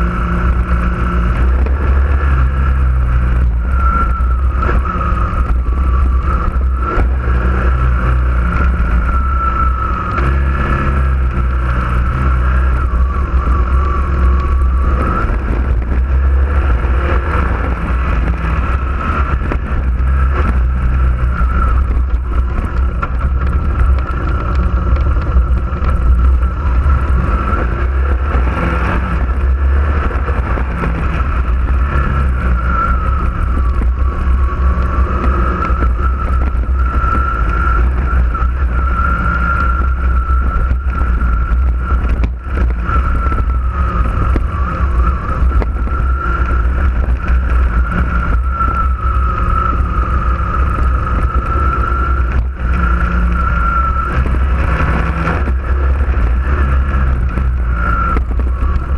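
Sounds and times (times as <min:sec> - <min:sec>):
low rumble of wind and vibration: 0:00.0 - 0:58.9
vehicle engine high whine: 0:00.0 - 0:58.9.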